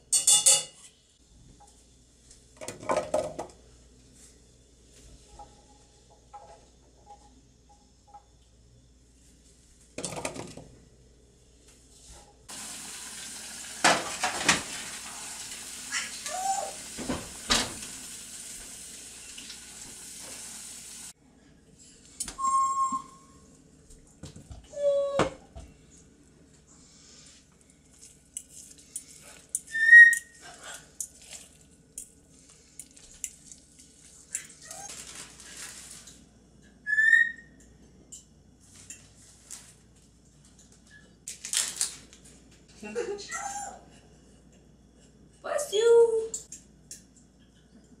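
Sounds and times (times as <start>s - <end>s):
cookware and dishes clinking: 0.0s - 1.0s.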